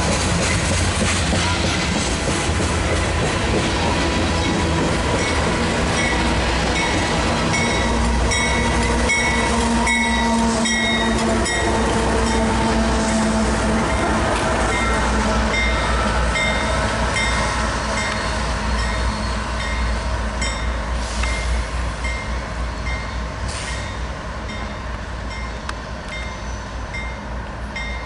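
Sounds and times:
passing train rumble: 0.0 - 28.0
locomotive electronic bell ringing: 4.4 - 6.2, 6.8 - 12.7, 14.7 - 21.4.

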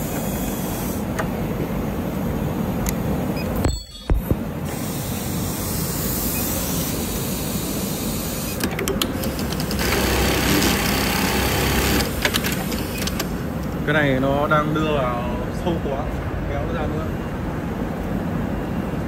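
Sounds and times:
sewing machine whirring: 8.4 - 13.4.

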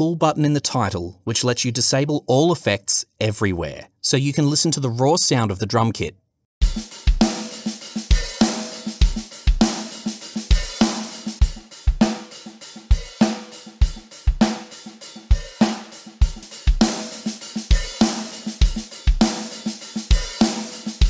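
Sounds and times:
acoustic drum kit groove: 6.6 - 21.0.

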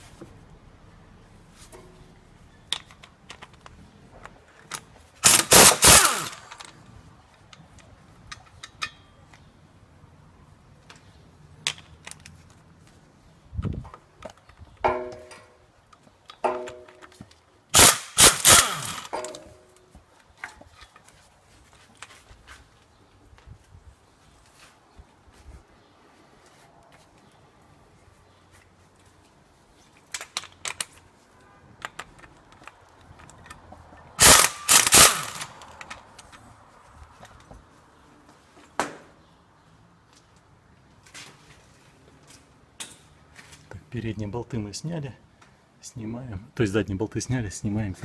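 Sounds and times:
wrench rattling bolts out: 17.8 - 19.6, 34.2 - 36.0.

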